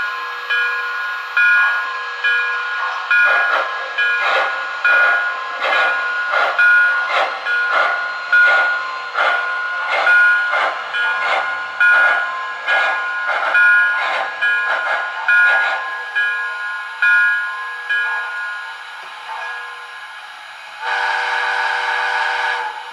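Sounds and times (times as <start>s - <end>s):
model steam exhaust chuffs: 20.6s - 22.9s.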